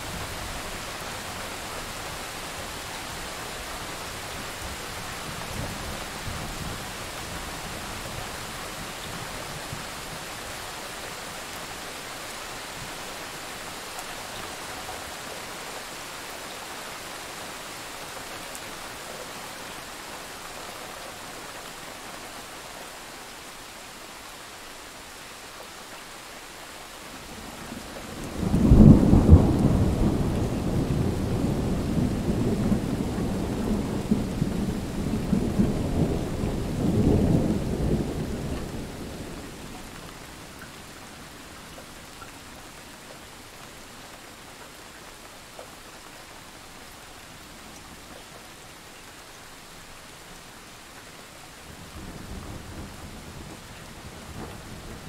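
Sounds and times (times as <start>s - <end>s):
steady rain: 0.0s - 55.0s
thunder rumbling: 28.2s - 39.6s.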